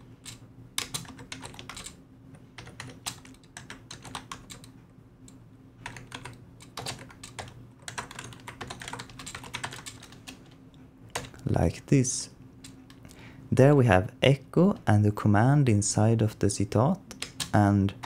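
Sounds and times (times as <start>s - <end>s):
low steady hum: 0.0s - 18.0s
typing on keyboard: 0.2s - 2.0s, 2.6s - 4.7s, 5.8s - 11.4s, 17.1s - 17.6s.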